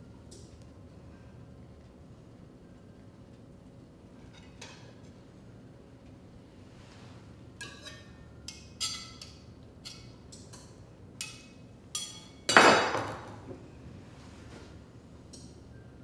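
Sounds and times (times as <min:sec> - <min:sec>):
cutlery clinking on a plate: 0:07.6 - 0:13.2.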